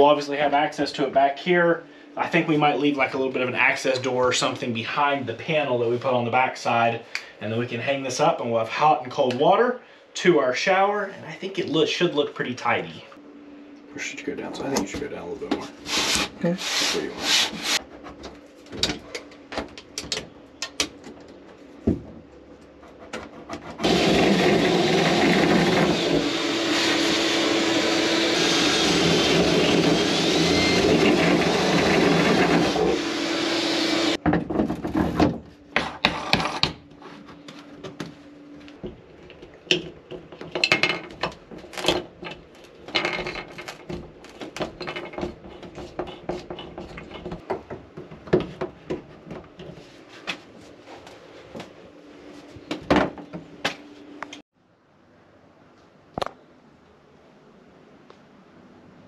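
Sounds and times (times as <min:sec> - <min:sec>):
power drill drilling: 0:23.8 - 0:34.2.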